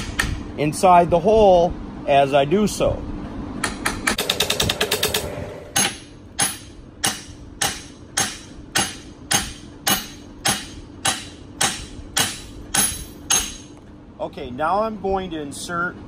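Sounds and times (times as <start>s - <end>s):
hammer striking metal: 3.6s - 13.8s.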